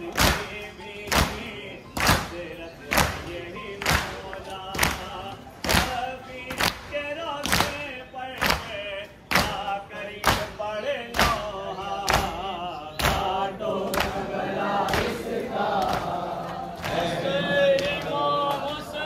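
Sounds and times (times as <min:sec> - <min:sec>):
men chanting together: 0:09.4 - 0:19.0.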